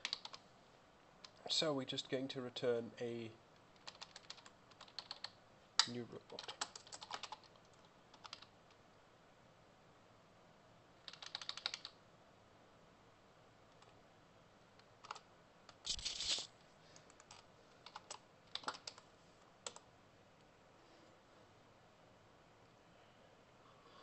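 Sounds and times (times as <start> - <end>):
typing on computer keyboard: 0.0 - 0.4, 3.8 - 8.5, 11.0 - 12.0, 14.8 - 16.4, 17.0 - 19.8.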